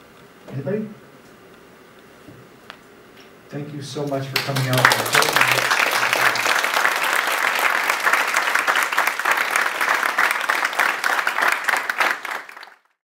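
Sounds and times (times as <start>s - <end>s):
audience applauding: 4.0s - 13.0s.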